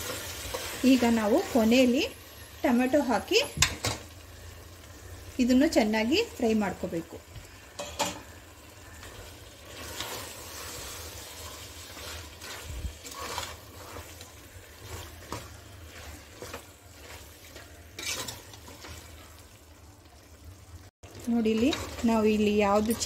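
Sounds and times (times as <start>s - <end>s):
spoon stirring and scraping: 0.0s - 1.5s, 8.2s - 19.4s, 21.4s - 23.0s
food sizzling in a pot: 0.0s - 23.0s.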